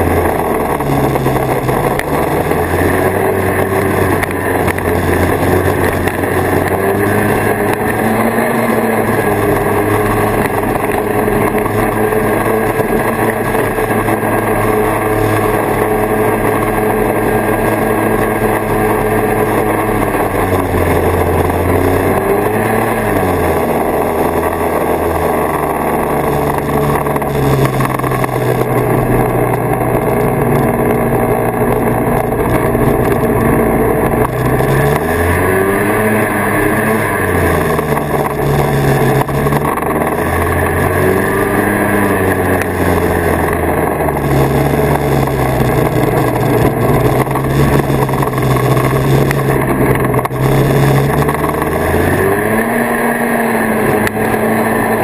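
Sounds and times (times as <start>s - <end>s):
snowmobile engine running: 0.0s - 55.0s.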